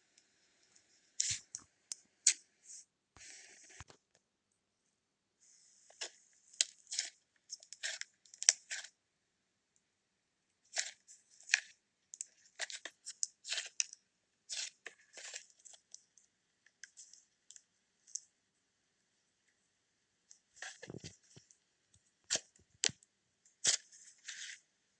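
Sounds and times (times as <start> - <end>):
slime crackling and tearing: 6.6 - 8.9.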